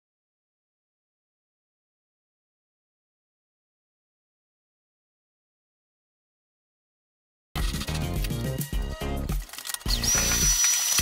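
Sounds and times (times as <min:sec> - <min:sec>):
background music with low beat: 0:07.6 - 0:11.0.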